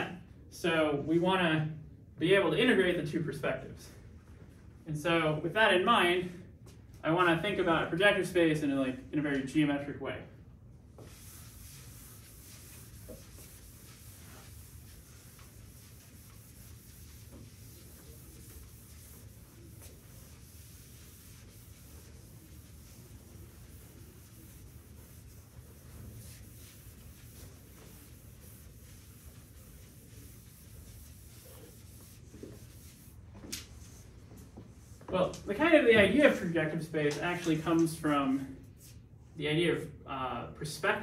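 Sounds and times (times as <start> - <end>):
low room hum: 0.0 - 41.0
eraser rubbing chalkboard: 11.0 - 34.1.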